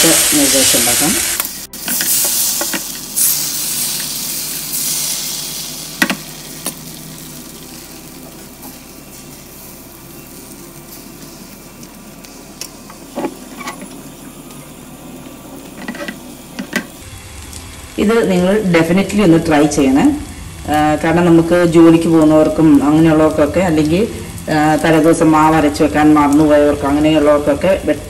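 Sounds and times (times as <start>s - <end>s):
batter sizzling on hot pan: 0.0s - 28.0s.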